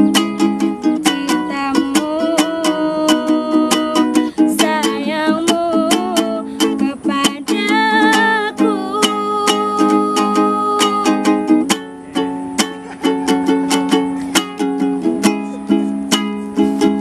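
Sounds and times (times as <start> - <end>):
ukulele strumming: 0.0 - 17.0
woman singing: 0.9 - 11.6.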